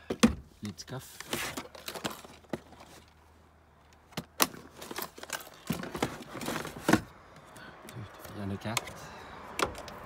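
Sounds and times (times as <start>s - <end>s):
plastic bins clicking and knocking: 4.2s - 7.1s.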